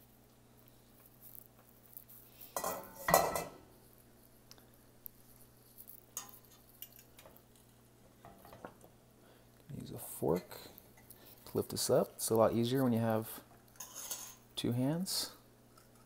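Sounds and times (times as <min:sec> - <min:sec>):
metal pot lid clattering: 0:02.6 - 0:03.6.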